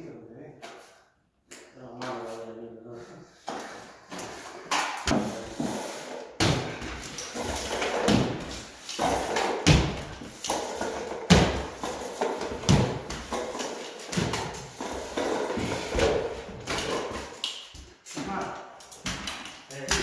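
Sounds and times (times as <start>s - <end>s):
taping banjo scraping on ceiling: 2.0s - 6.4s, 7.0s - 17.4s.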